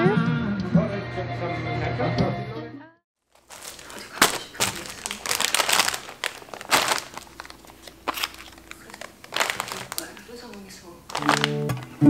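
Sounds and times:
plastic packaging crinkling: 3.2 - 12.0.

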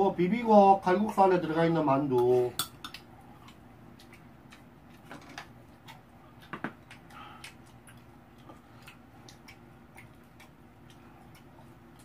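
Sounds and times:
utensils clinking against a bowl: 2.1 - 3.0
chewing: 2.8 - 12.0.

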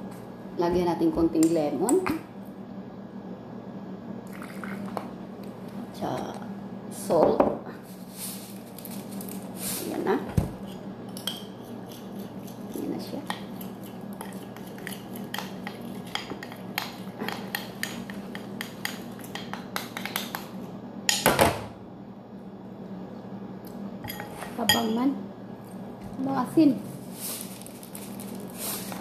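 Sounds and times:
spoon clinking and scraping bowl: 10.7 - 20.3.

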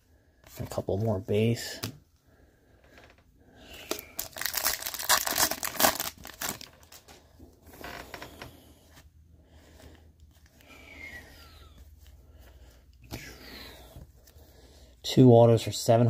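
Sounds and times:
cards rustling: 3.7 - 7.1
foil wrapper tearing and crinkling: 3.8 - 7.0.

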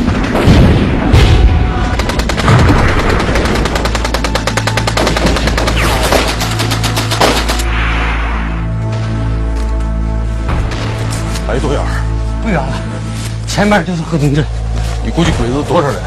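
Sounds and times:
rapid machine-gun fire: 1.8 - 7.6.

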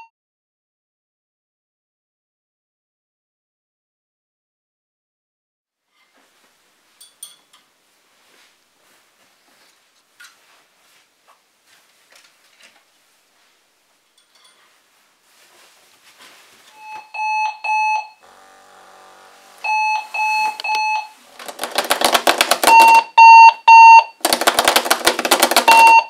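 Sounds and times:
high-pitched alarm beeps: 16.8 - 18.2, 19.6 - 21.2, 22.7 - 24.2
rasping alarm buzz: 17.3 - 21.4.

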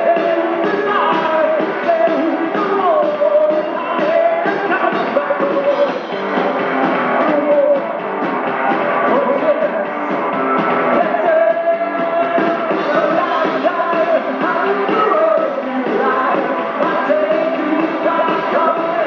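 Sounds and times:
person singing: 0.0 - 19.0
rock and roll band playing: 0.0 - 19.0.

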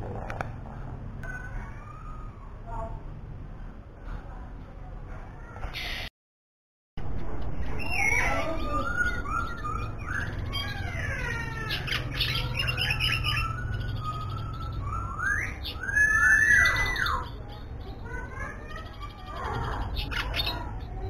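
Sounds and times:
songbird singing: 7.1 - 21.0.

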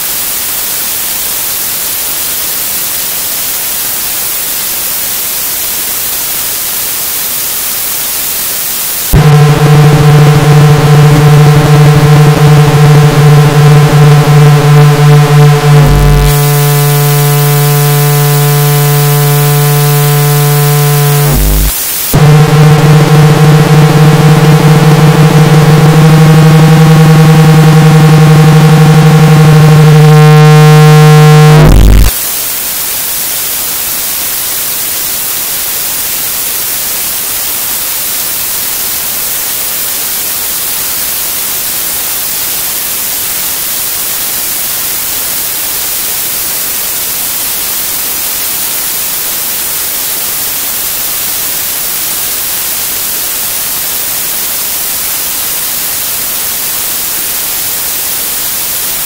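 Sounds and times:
white-noise static: 0.0 - 59.0
synthesizer drone: 9.2 - 32.2.

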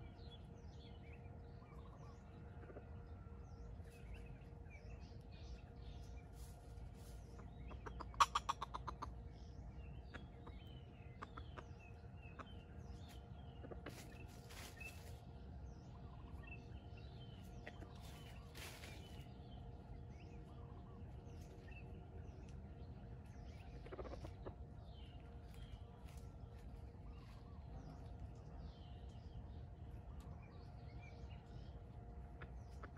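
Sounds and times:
faint steady drone: 0.0 - 8.2, 8.9 - 32.9
bird chirps: 0.0 - 32.9
rustles: 6.1 - 7.4, 13.8 - 15.3, 17.9 - 19.4
junglefowl clucking: 7.3 - 9.3, 13.6 - 14.1, 23.5 - 24.6.

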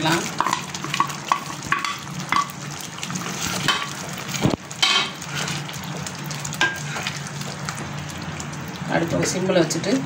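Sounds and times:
syrup bubbling sizzle: 0.0 - 10.0
spatula knocking and scraping pan: 0.4 - 2.6.

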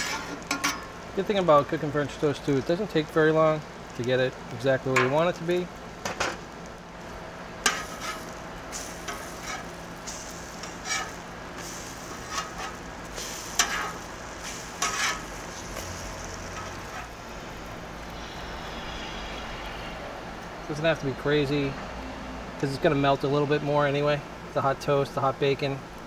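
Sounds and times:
toast sizzling on griddle: 0.0 - 21.8
metal spatula scraping: 7.7 - 17.2.

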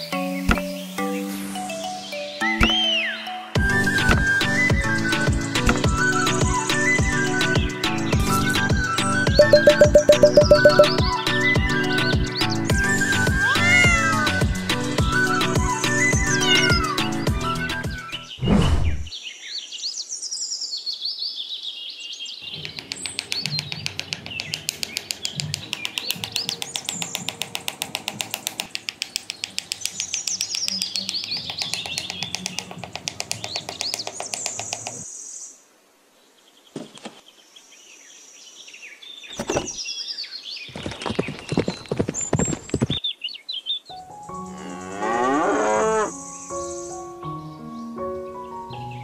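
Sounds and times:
birds chirping and twittering: 0.0 - 8.6, 15.3 - 35.6, 36.2 - 49.0
background music: 0.0 - 18.3, 44.0 - 49.0.

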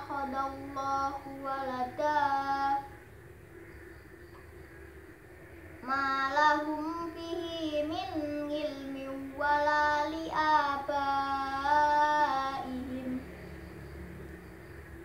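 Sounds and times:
boy reciting melodically: 0.0 - 3.0, 5.8 - 13.5.

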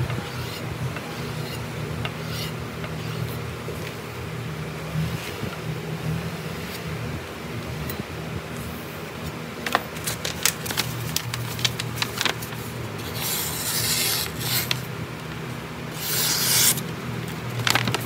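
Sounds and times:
paper crackling and rustling: 9.6 - 14.9, 16.0 - 18.0
knife slicing through paper: 10.1 - 14.8, 15.9 - 16.8.

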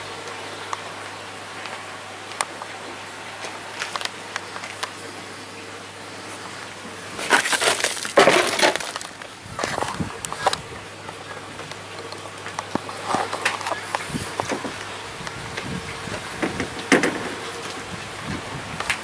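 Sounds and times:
scrap debris crunching: 7.1 - 10.6.

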